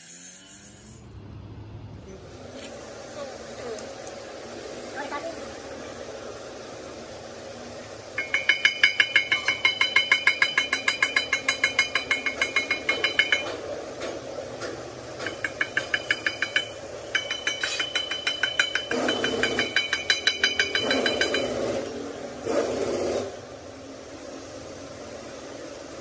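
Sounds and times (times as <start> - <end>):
steel bar striking metal: 8.2 - 22.0.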